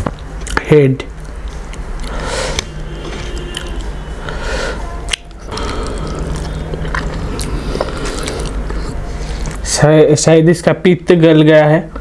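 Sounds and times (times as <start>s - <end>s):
wet chewing and mouth sounds: 1.2s - 4.1s, 5.0s - 9.6s.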